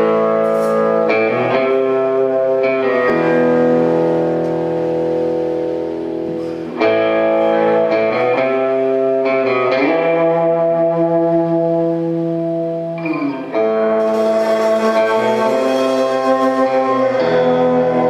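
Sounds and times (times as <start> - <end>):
electric guitar chords: 0.0 - 18.0.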